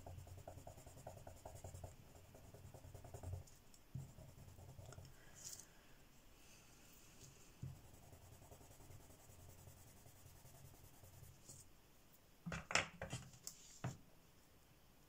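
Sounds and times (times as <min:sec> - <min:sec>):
pencil scratching on paper: 0:00.0 - 0:05.1, 0:07.6 - 0:11.6.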